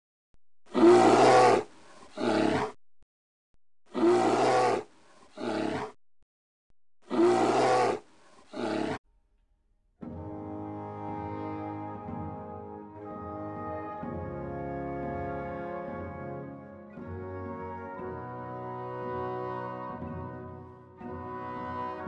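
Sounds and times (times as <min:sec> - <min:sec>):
lion roar: 0:00.7 - 0:02.8, 0:03.9 - 0:06.0, 0:07.1 - 0:09.0
brass fanfare: 0:10.1 - 0:22.0.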